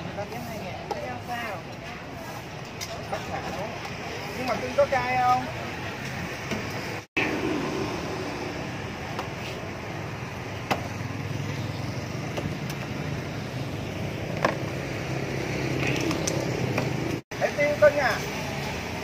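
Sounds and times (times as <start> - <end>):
street traffic with low hum: 0.0 - 19.0.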